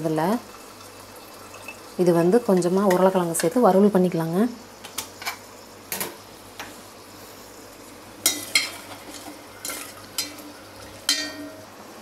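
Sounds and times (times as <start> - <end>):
metal spoon stirring in steel pot: 8.2 - 11.6.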